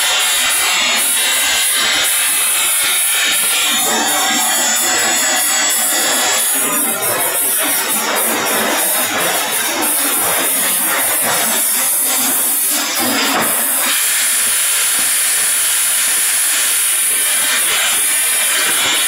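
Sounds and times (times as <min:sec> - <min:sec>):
polishing machine hissing: 0:00.0 - 0:18.9.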